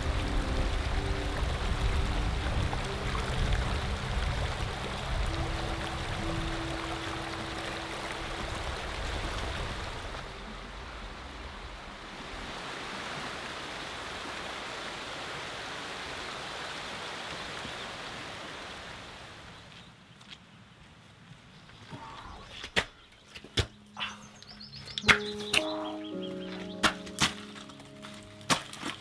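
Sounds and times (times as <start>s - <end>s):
river rushing over rocks: 0.0s - 19.5s.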